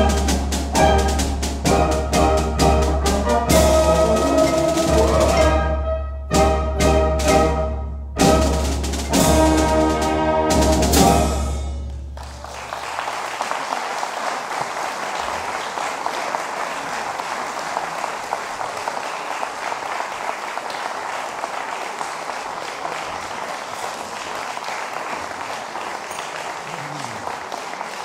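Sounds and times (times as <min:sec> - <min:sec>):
brass chord: 0:00.0 - 0:12.0
audience applause: 0:12.0 - 0:28.0.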